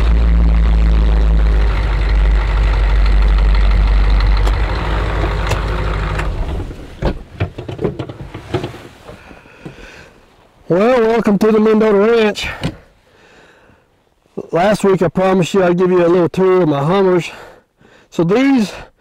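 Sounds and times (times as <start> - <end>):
diesel engine running: 0.0 - 7.3.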